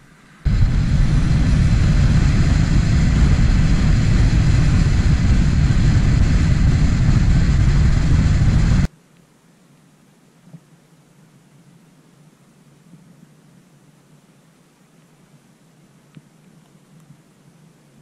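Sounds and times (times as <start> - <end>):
vehicle engine: 0.0 - 8.9
wind rushing on microphone: 0.4 - 8.9.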